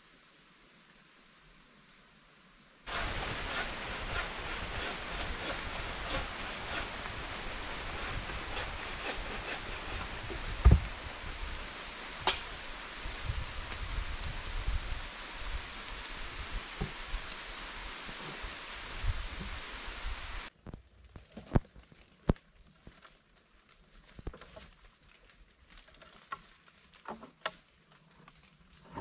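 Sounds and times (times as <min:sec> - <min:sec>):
steady outdoor hiss: 0:00.0 - 0:20.6
wooden logs knocking: 0:02.9 - 0:10.9
low thumps: 0:09.8 - 0:11.0.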